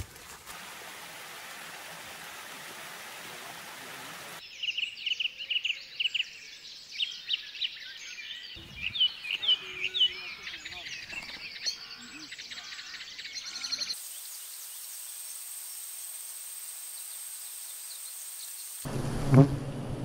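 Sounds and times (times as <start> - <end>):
water rushing from waterfall: 0.0 - 4.4
birds chirping and singing: 4.4 - 14.4.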